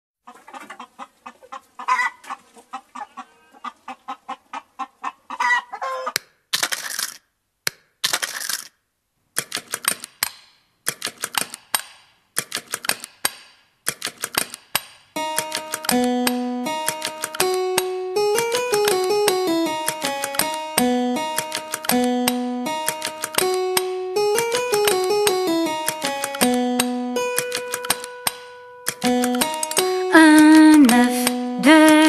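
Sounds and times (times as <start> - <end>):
hen clucking: 0.2 - 6.2
hen cackling: 0.3 - 6.2.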